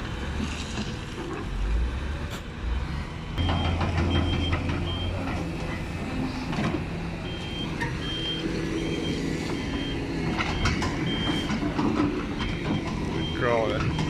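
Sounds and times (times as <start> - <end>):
diesel engines running: 0.0 - 14.0
reversing alarm beeping: 3.4 - 5.4, 7.2 - 14.0.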